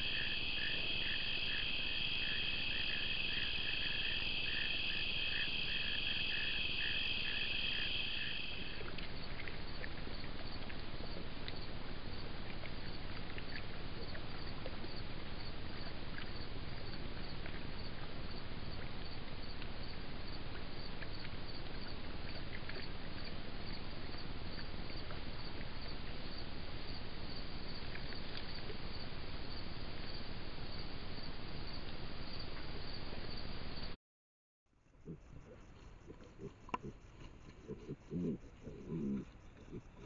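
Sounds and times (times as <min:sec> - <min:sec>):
steady microphone hiss: 0:00.0 - 0:20.9
faint ticks: 0:34.9 - 0:40.0.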